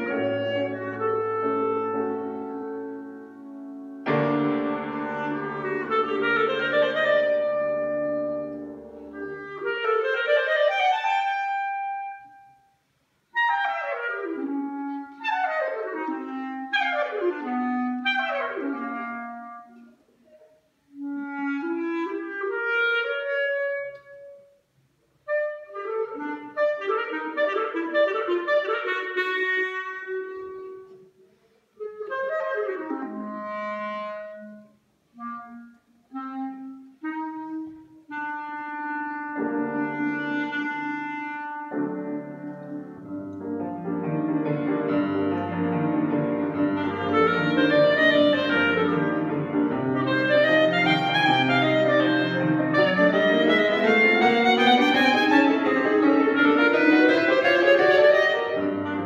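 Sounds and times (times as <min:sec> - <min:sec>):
piano chords: 0:00.0 - 0:12.2, 0:39.2 - 0:59.0
clarinet solo: 0:00.0 - 0:59.0.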